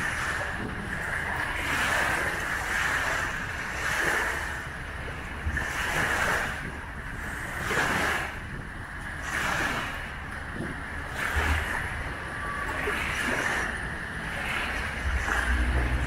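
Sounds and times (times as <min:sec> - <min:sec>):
small waves washing onto shore: 0:00.0 - 0:16.0
wind rumble on microphone: 0:00.0 - 0:16.0.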